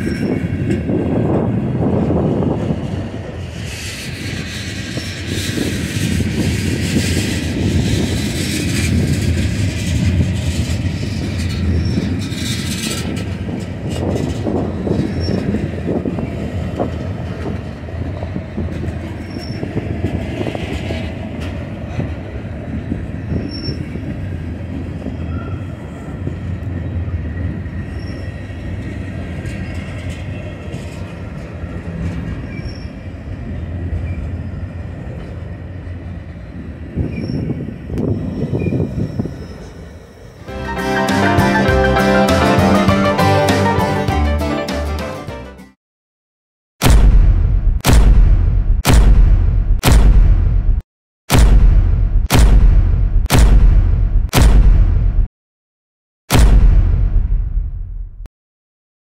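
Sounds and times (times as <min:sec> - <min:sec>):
train wheels rumbling on rails: 0:00.0 - 0:41.6
high-pitched wheel squeals: 0:19.2 - 0:19.7, 0:27.8 - 0:28.4, 0:37.0 - 0:40.2.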